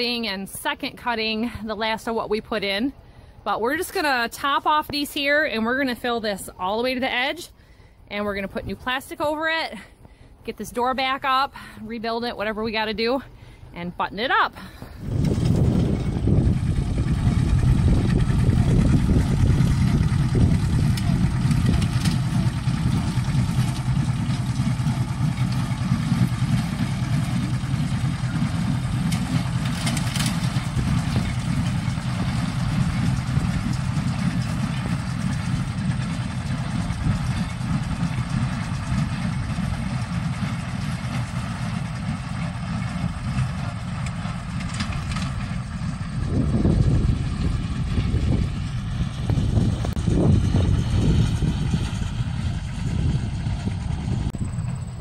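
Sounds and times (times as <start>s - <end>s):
vehicle engine running: 14.6s - 55.0s.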